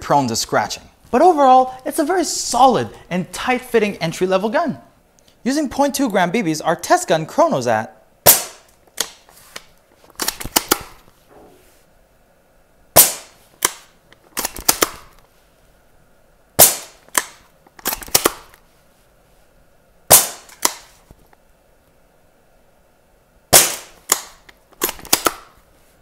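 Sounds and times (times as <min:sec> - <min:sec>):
airsoft rifle shots: 0:08.2 - 0:09.2, 0:10.2 - 0:11.0, 0:13.0 - 0:15.1, 0:16.6 - 0:18.5, 0:20.1 - 0:21.0, 0:23.5 - 0:25.5
rifle bolt clicking: 0:13.6 - 0:15.1, 0:20.2 - 0:20.9, 0:23.6 - 0:25.5.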